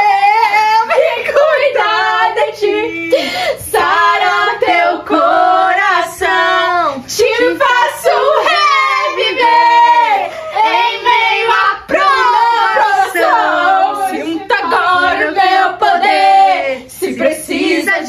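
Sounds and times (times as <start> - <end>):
woman singing unaccompanied: 0.0 - 18.0.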